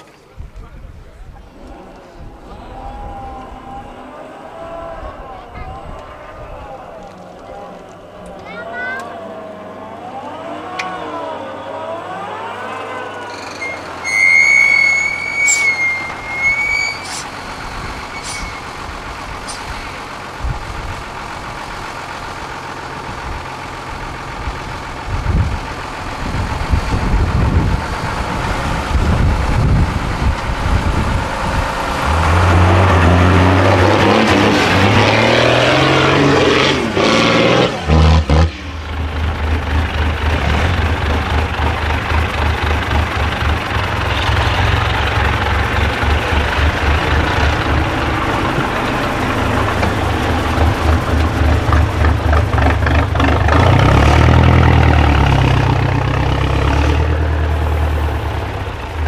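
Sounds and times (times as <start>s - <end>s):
truck diesel engines revving: 0.9s - 59.0s
high steady tone: 8.1s - 17.2s.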